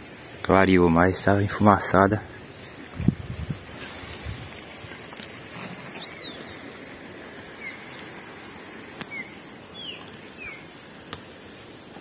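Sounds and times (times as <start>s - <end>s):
steady outdoor hiss: 0.0s - 12.0s
bird chirping: 5.8s - 11.8s.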